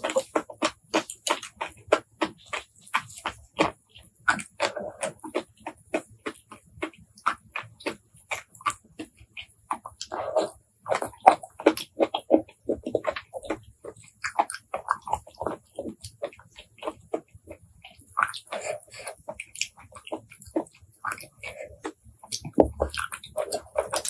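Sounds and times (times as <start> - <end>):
close chewing mouth smacks: 0.0 - 24.0
small mouth clicks: 0.0 - 24.0.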